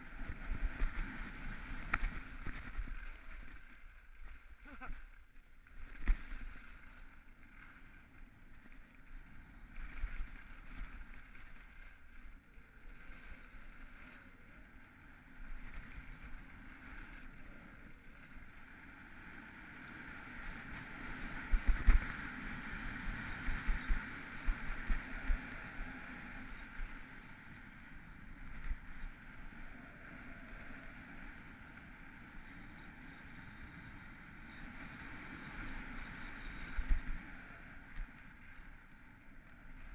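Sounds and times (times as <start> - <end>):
skis scraping over snow: 0.0 - 39.9
wind on microphone: 20.6 - 26.8.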